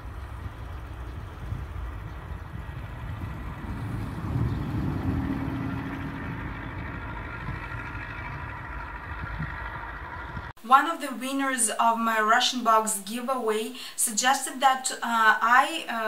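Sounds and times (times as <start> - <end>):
vehicle engine rumbling: 0.0 - 10.6.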